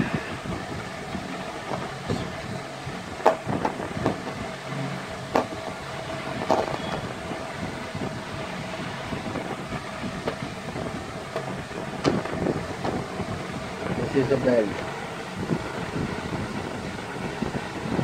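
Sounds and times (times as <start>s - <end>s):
steady background hum: 0.0s - 18.0s.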